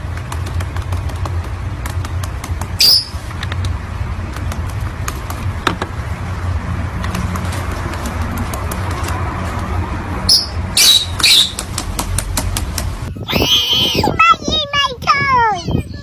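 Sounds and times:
bird feet tapping on keyboard: 0.0 - 2.8, 4.3 - 5.8, 7.0 - 9.7, 11.5 - 13.0
short high bird chirp: 2.8 - 3.2, 10.3 - 11.6.

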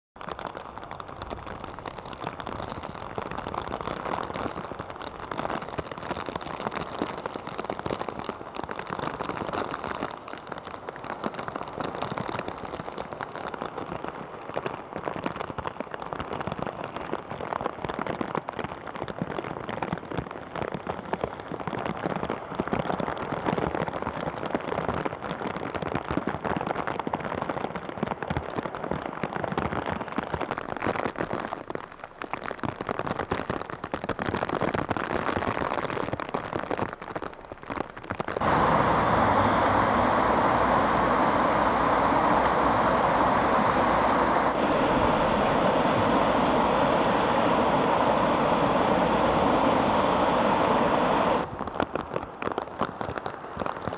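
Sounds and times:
heavy rain pouring: 38.4 - 52.5.

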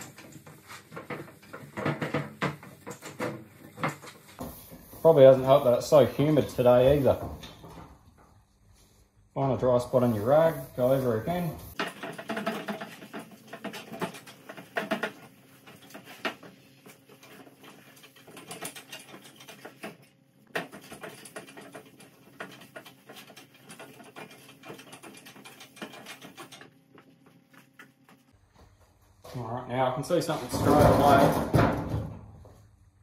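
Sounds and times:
cloth rag rubbing on metal panel: 4.2 - 7.2, 8.5 - 14.7.

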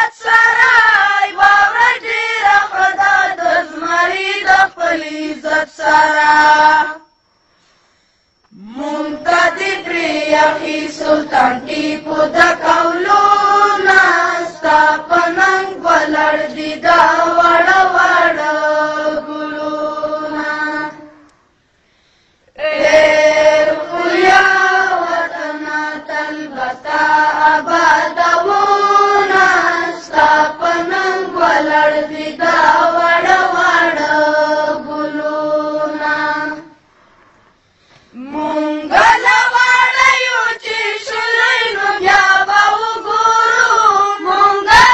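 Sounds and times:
person singing patriotic song: 8.5 - 21.3, 38.1 - 44.9.

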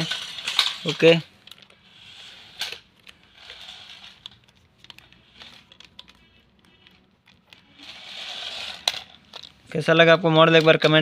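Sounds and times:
wheels rattling over tiles: 0.0 - 6.1, 7.6 - 9.5
toy car motors whirring: 0.0 - 9.5.

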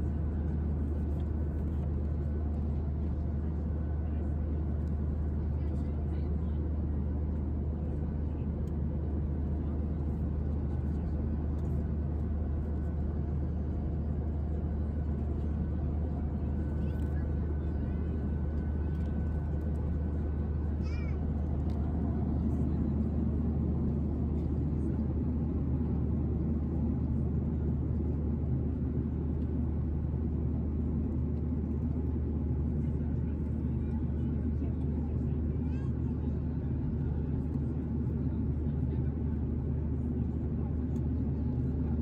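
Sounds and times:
airplane cabin engine drone: 0.0 - 42.0.

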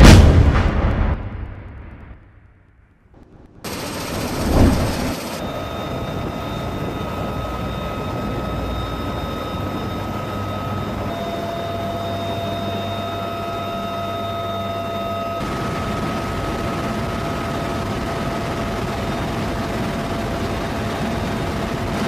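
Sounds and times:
helicopter engines and rotor rumble: 3.2 - 22.0
loud thump: 4.3 - 5.1.

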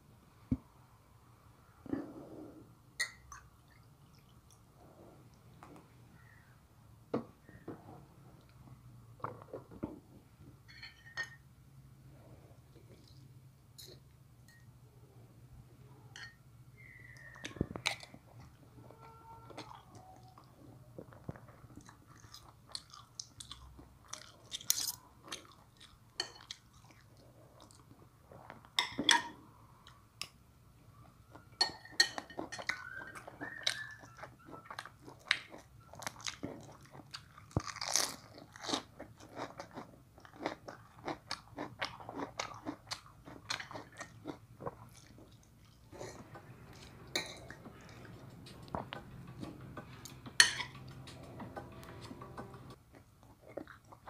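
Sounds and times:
person chewing and crunching food: 16.8 - 28.8, 31.3 - 54.0.

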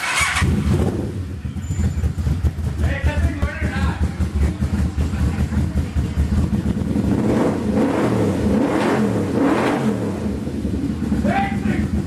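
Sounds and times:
motorcycle engine idling and revving: 0.0 - 12.0.

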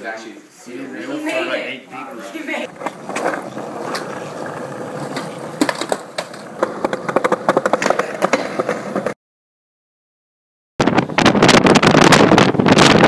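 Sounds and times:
skateboard wheels rolling on pavement: 2.6 - 9.2
skateboard clacks: 2.7 - 9.2.

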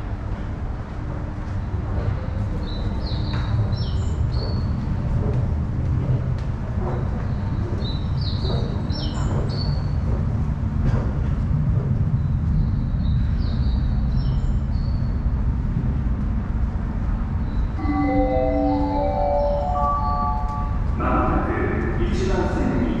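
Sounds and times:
electronic chime melody: 17.8 - 20.8.

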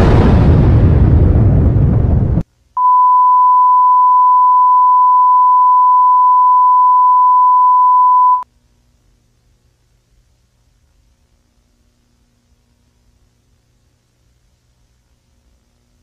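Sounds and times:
steady test tone beep: 2.8 - 8.4.

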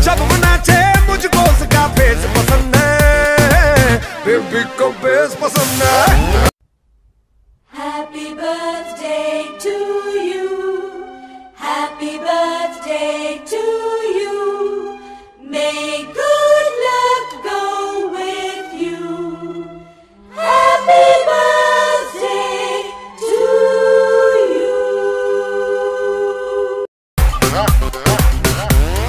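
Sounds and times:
choir-like singing: 7.7 - 26.9.

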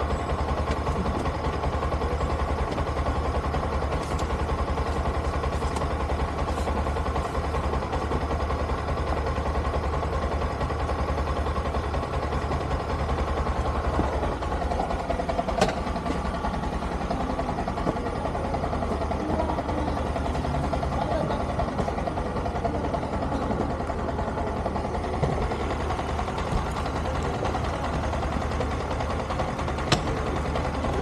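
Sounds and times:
motorcycle engine idling: 0.0 - 31.0.

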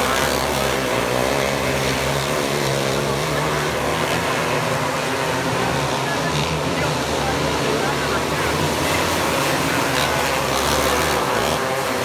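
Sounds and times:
racing kart engines: 0.0 - 12.0.

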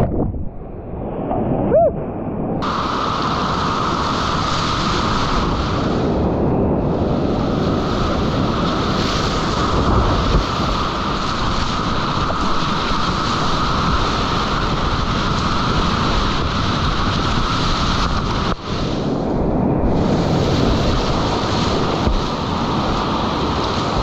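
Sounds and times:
whitewater rapids rushing: 2.6 - 6.1, 7.6 - 19.0.

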